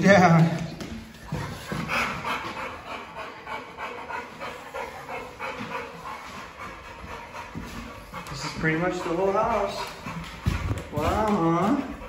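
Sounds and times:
dog panting: 0:00.8 - 0:12.0.

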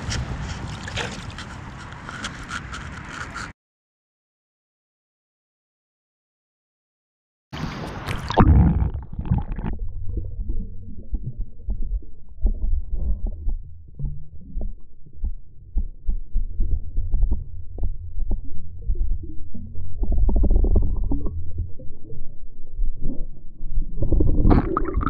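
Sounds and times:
muffled underwater rumble: 0:07.6 - 0:25.0
camera splashing into water: 0:08.0 - 0:09.7.

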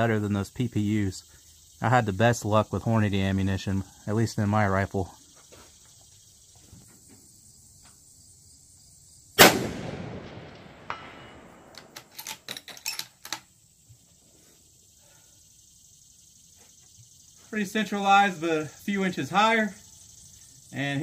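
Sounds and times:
rifle shot echoing: 0:09.4 - 0:12.0.

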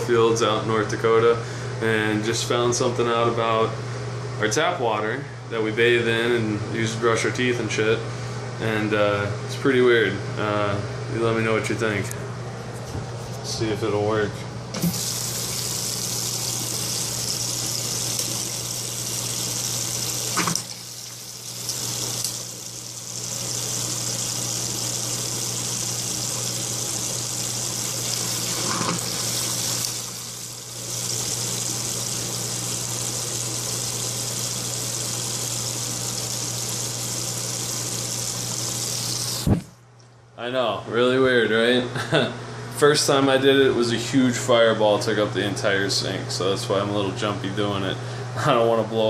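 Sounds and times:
tap running into sink: 0:14.8 - 0:15.7, 0:20.3 - 0:22.4, 0:28.0 - 0:30.0.

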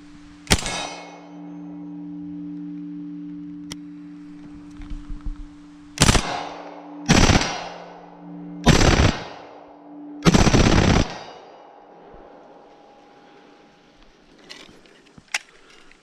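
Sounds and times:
gunshot echo: 0:00.5 - 0:01.4, 0:06.0 - 0:08.0
submachine gun bursts: 0:10.2 - 0:11.3.

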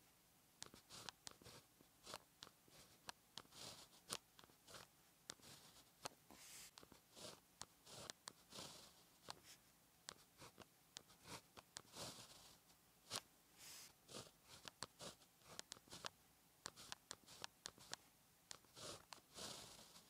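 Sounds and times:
pen tip ticks: 0:00.6 - 0:01.4, 0:14.2 - 0:20.0
pen scratching on paper: 0:00.6 - 0:20.0.

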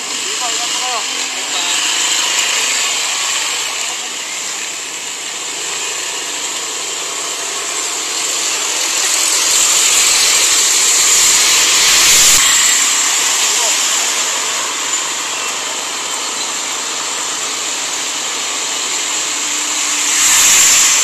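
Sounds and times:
road traffic passing: 0:00.0 - 0:21.0.

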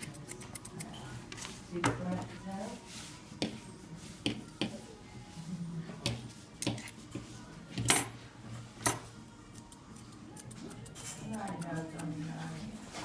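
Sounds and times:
scissors snipping hair: 0:00.0 - 0:01.0, 0:09.5 - 0:12.2.

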